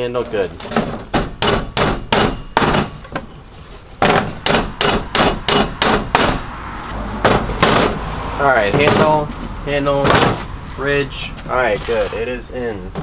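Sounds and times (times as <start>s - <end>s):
hammer striking nails into wood: 1.1s - 3.0s, 4.0s - 6.4s.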